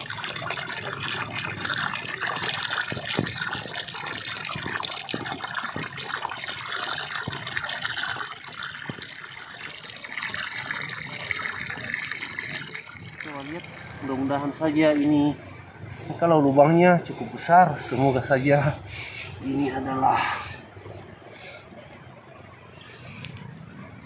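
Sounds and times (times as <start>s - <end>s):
water gushing from pipe: 0.0s - 23.2s.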